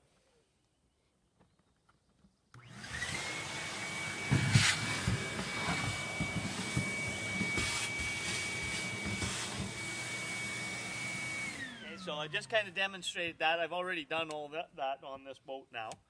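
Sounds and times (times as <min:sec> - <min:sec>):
shop vacuum whining: 0:02.6 - 0:12.7.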